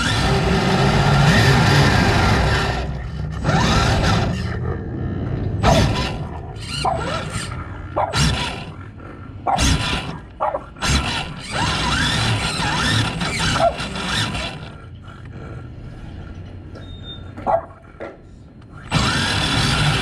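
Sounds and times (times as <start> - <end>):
toy car motor running: 0.0 - 4.6, 5.6 - 8.8, 9.5 - 15.6, 18.6 - 20.0
dog barking grunting and squealing: 0.0 - 20.0.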